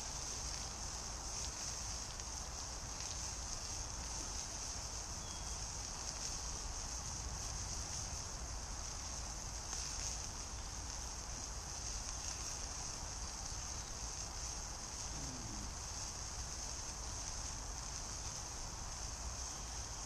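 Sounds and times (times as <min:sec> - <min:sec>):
high-pitched hiss: 0:00.0 - 0:20.0
distant motorway traffic rumble: 0:10.3 - 0:19.3.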